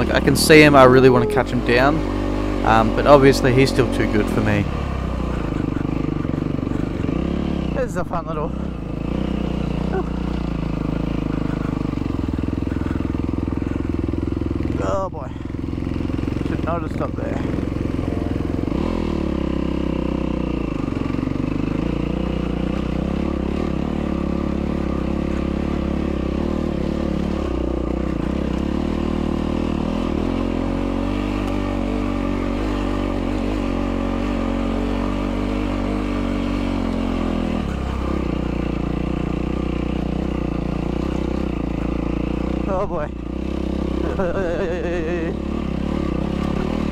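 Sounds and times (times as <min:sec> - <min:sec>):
dirt bike engine under throttle: 0:00.0 - 0:46.9.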